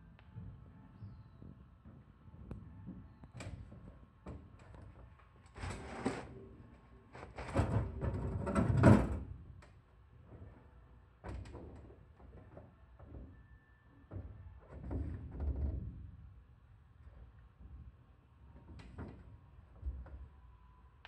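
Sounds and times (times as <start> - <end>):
chimney pipe scraping: 5.5 - 6.4.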